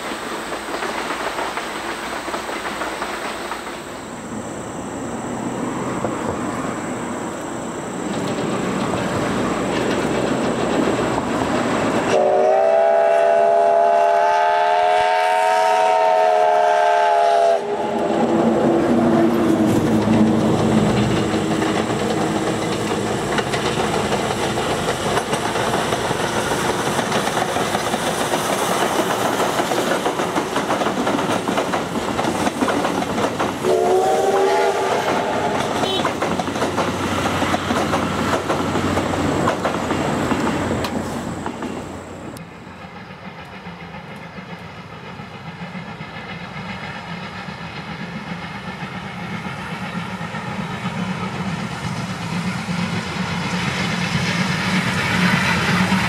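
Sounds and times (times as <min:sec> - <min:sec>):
steam train running past: 0:00.0 - 0:56.0
steam whistle chord: 0:12.1 - 0:18.3, 0:33.6 - 0:36.0.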